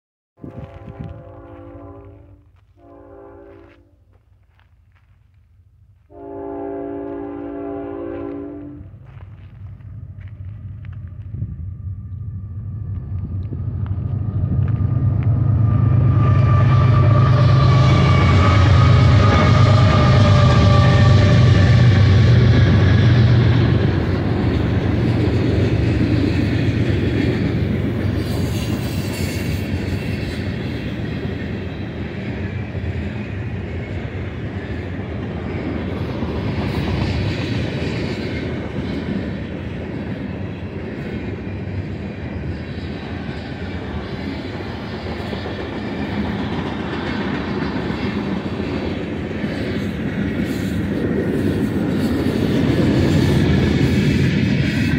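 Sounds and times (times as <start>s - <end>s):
diesel locomotive engine drone: 0.4s - 54.9s
freight cars rumbling on rails: 6.6s - 54.9s.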